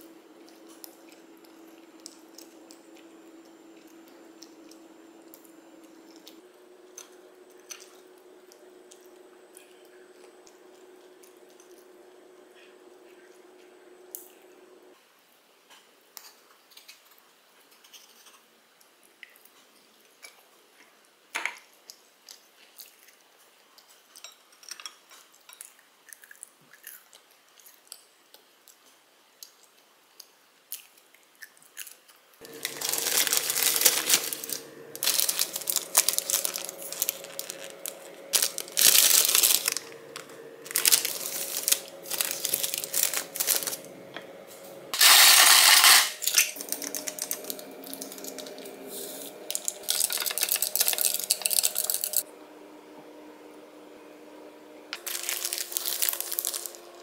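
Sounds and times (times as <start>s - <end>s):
soft chewing: 0.4s - 14.6s, 21.7s - 43.8s
plastic ice cube tray crackling: 32.4s - 39.8s, 40.6s - 43.8s, 45.0s - 48.6s, 49.5s - 52.2s, 55.0s - 56.8s.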